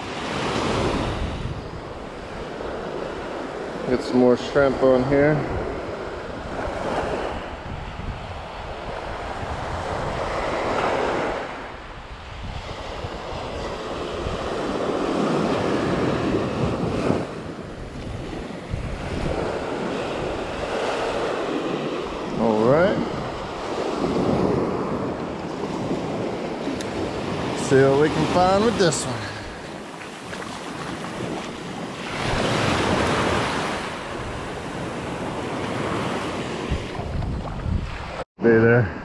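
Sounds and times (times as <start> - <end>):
wind buffeting microphone: 0.0 - 4.0, 4.6 - 39.0
surf breaking on sand: 12.6 - 38.2.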